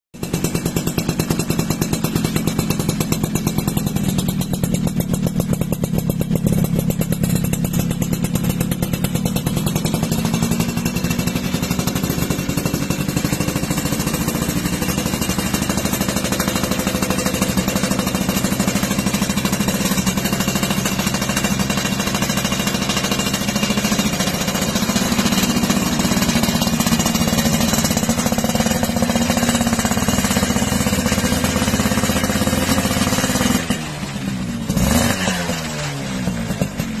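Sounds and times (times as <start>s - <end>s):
motorcycle exhaust popping: 0.2s - 37.0s.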